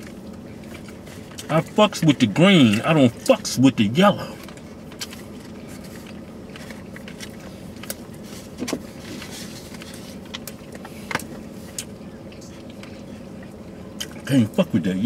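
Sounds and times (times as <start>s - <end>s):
car engine idling: 0.0s - 15.0s
food packaging clicks and rustles: 4.4s - 12.0s.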